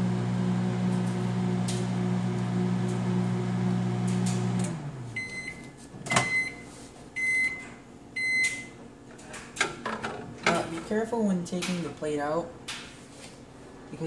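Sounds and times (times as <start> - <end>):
microwave oven humming: 0.0 - 10.4
microwave beeps: 5.1 - 8.8.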